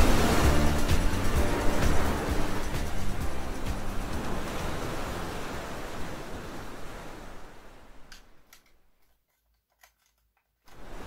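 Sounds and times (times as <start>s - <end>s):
soft background music: 0.0s - 6.1s.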